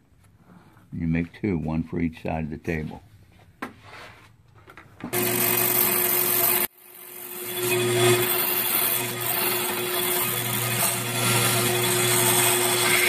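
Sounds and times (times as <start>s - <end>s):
bandsaw cutting wood: 5.1s - 13.0s.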